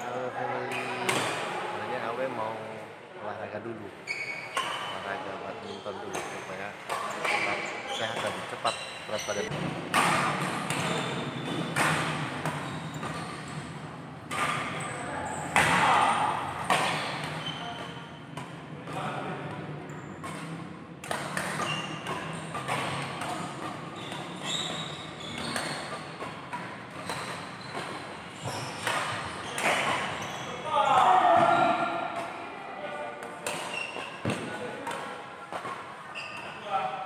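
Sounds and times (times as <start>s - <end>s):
players' voices: 0.0s - 24.7s, 28.0s - 37.0s
racket hitting shuttlecock: 9.5s - 14.8s, 15.5s - 19.6s, 20.2s - 30.2s, 33.1s - 36.1s.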